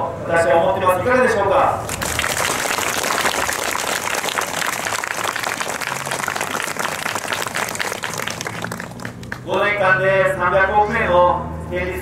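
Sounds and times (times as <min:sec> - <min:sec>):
crowd applauding: 0:01.9 - 0:09.6.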